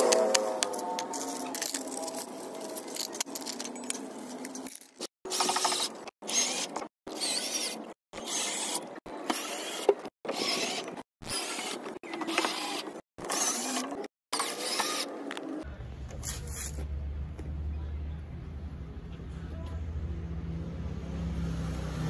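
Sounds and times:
bolts clinking in plastic bag: 0.8 - 5.1.

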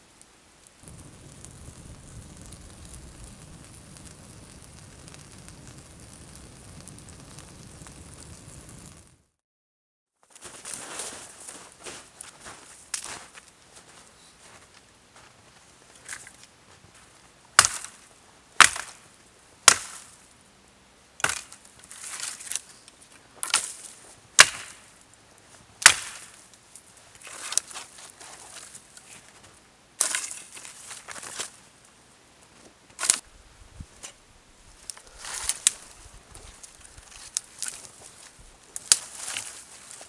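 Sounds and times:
twigs rustling and scraping: 15.2 - 19.1, 21.2 - 40.0
dry branches cracking: 17.6 - 19.0, 21.2 - 24.9, 25.8 - 29.4, 30.0 - 31.6, 32.9 - 33.3, 33.9 - 40.0.

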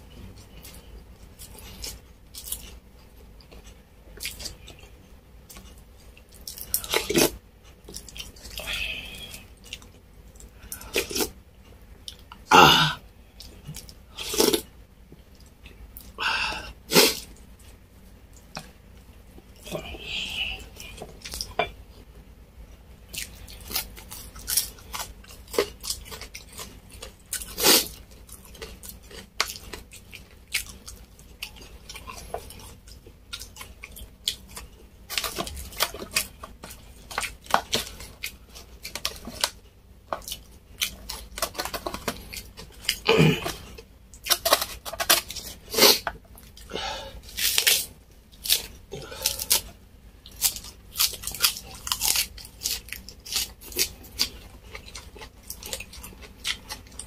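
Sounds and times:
chewing: 23.1 - 57.0
lettuce leaves tearing: 47.3 - 49.7, 50.3 - 54.3.

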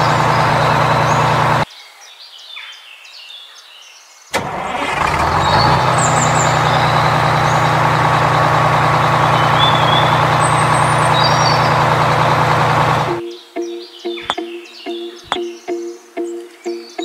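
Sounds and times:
truck engine: 0.0 - 1.6, 4.4 - 13.2
bird chirps: 0.0 - 4.3, 5.4 - 7.8, 9.2 - 12.4, 13.1 - 17.0.

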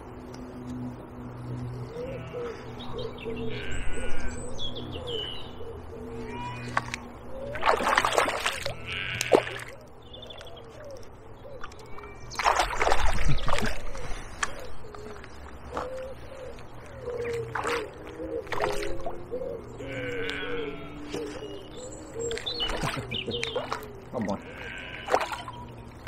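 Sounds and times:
small birds chirping: 1.4 - 26.0
pigeon cooing: 13.3 - 24.6.

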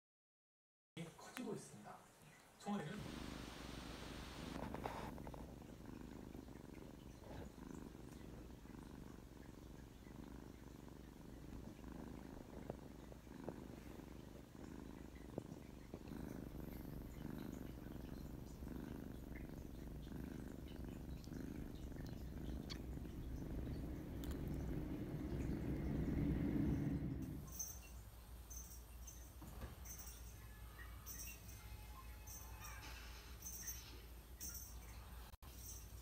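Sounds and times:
kitten purring: 2.8 - 27.9.

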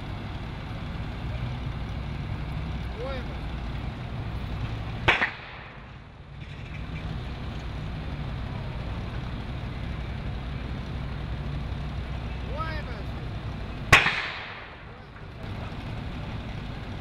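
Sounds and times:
low rumble of fire: 0.0 - 17.0
sharp crack from burning building: 5.0 - 6.0, 13.9 - 15.3.

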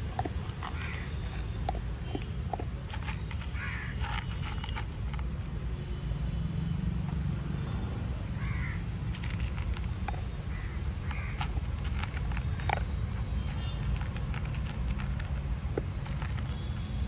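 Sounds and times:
dog crunching dry kibble: 0.0 - 5.6, 7.1 - 17.0
crows cawing: 0.8 - 1.0, 3.6 - 3.9, 8.4 - 8.8, 10.5 - 11.4.

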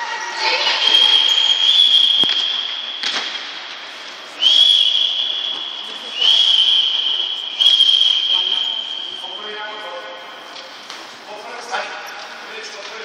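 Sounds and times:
sports whistle blasts: 0.6 - 3.3, 4.3 - 10.0.

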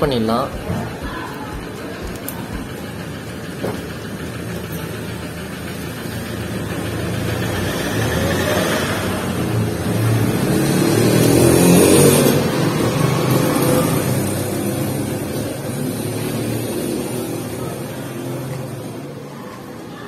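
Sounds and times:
vehicle passing by: 6.2 - 18.8.

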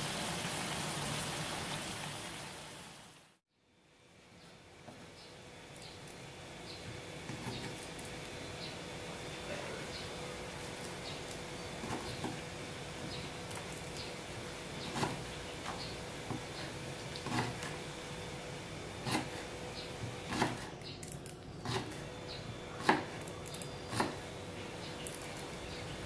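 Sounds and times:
knife chopping on wooden board: 10.7 - 12.4, 14.8 - 16.6, 17.2 - 17.8, 19.0 - 20.8, 21.6 - 22.0, 22.7 - 24.3.

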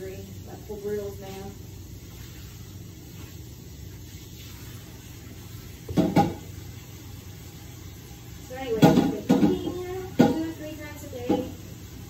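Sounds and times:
low kitchen hum: 0.0 - 12.0
knock or clatter: 5.9 - 6.4.

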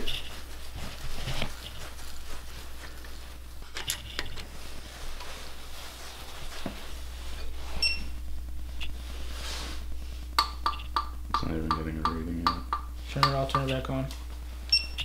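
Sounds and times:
low steady hum: 0.0 - 15.0
metal taps: 10.4 - 13.8.

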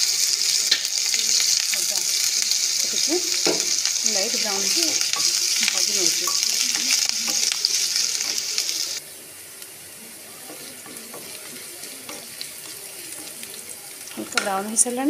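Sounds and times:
food sizzling in hot oil: 0.0 - 15.0
spatula scraping wok: 1.3 - 9.0, 10.5 - 14.7.

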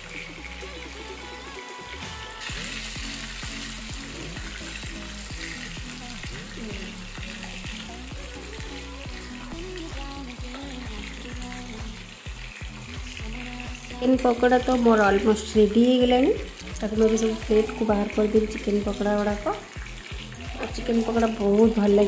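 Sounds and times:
background music with beat: 0.0 - 22.0
food deep-frying in oil: 0.0 - 22.0.

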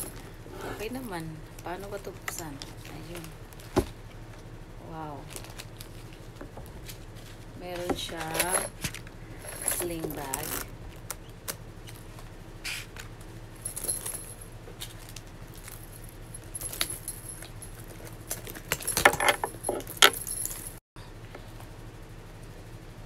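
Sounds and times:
metal chain jingling: 9.4 - 10.6, 13.6 - 14.5, 18.8 - 20.8.

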